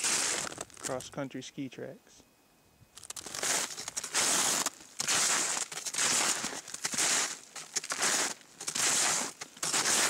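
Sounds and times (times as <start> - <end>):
snowshoes crunching through snow: 0.0 - 1.0, 3.0 - 10.0.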